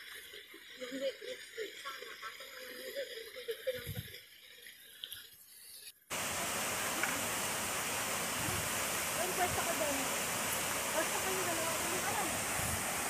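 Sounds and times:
waterfall rushing: 6.1s - 13.0s.

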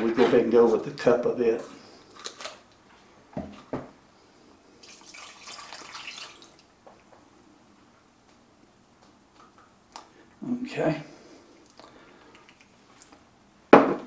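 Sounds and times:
liquid pouring into saucepan: 4.8s - 6.7s.

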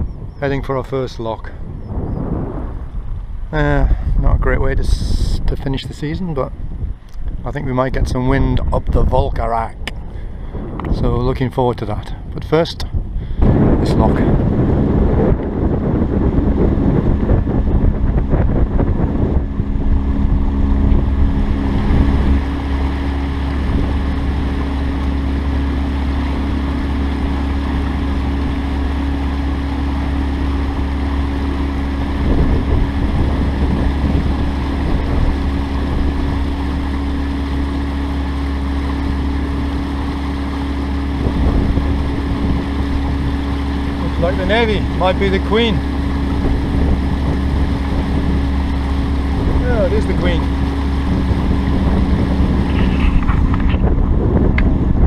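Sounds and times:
boat motor droning: 0.0s - 55.0s
wind on microphone: 0.0s - 55.0s.

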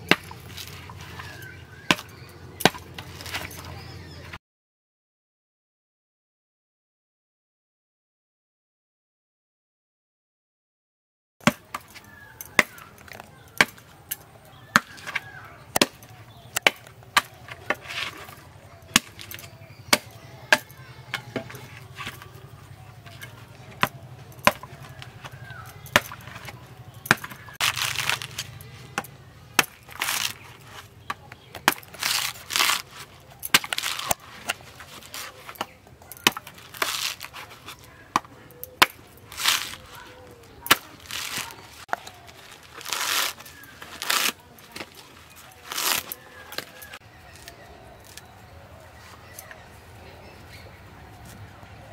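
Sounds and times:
coconut husk tearing: 0.0s - 3.9s, 11.4s - 48.3s
knife chopping coconut husk: 0.0s - 3.9s, 11.4s - 48.3s.

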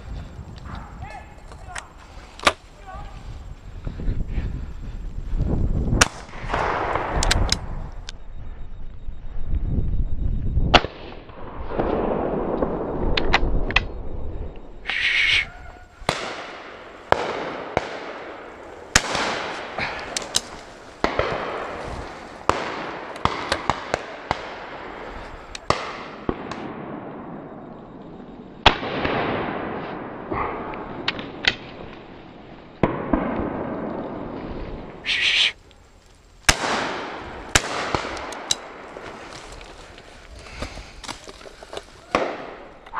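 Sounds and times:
shotguns firing with echo: 16.1s - 25.0s, 25.7s - 27.1s, 32.8s - 33.9s, 36.5s - 39.0s, 42.1s - 42.7s.

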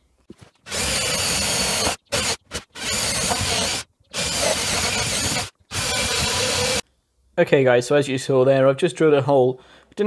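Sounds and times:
cordless drill boring into wood: 0.6s - 6.8s.

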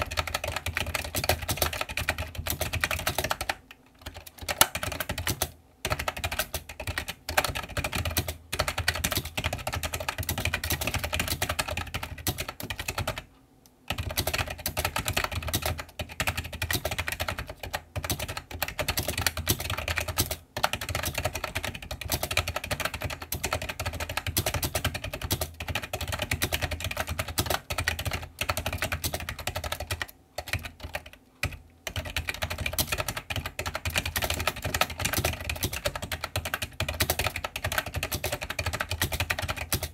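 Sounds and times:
keyboard typing clacks: 0.0s - 13.3s, 13.9s - 39.9s.

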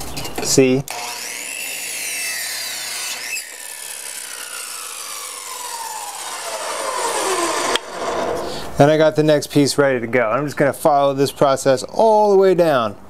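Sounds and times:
saw motor whine spinning down: 0.9s - 8.8s.

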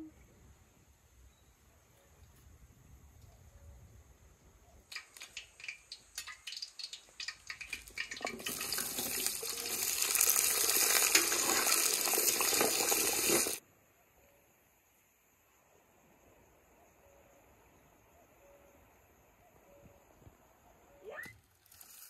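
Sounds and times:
potatoes sizzling in hot oil: 4.9s - 13.6s.

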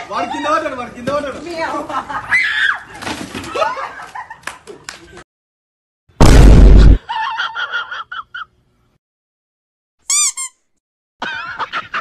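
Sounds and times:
explosion blast: 6.2s - 7.0s
brief high-pitched call: 10.1s - 10.6s
short squeaky cries: 10.1s - 10.6s.

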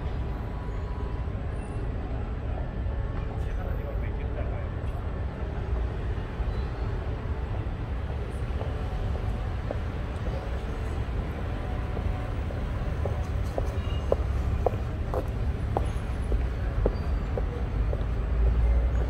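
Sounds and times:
city street traffic rumble: 0.0s - 19.0s.

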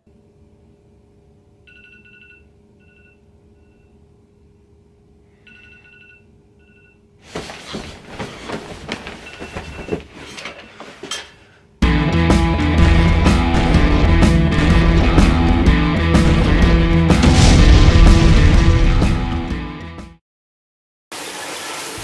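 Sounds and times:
bedding rustling and bumps: 7.2s - 11.5s.

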